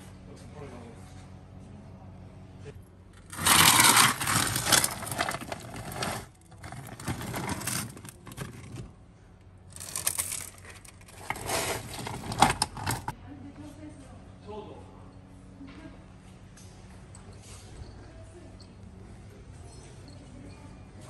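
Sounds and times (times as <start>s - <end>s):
coal clattering on shovel: 3.2s - 8.8s
shovel scraping into coal: 3.2s - 8.8s, 11.0s - 13.1s.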